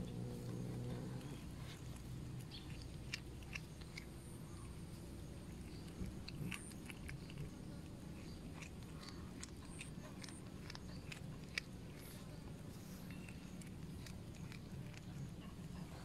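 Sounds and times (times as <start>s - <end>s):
cat chewing with wet crunches: 0.0s - 16.0s.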